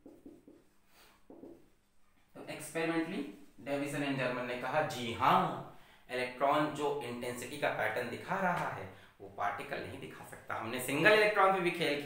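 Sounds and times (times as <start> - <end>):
marker strokes on whiteboard: 0.0 - 1.7.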